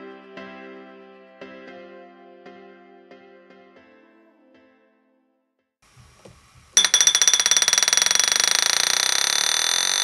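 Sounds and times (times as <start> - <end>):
loud alarm ringing: 6.8 - 10.0.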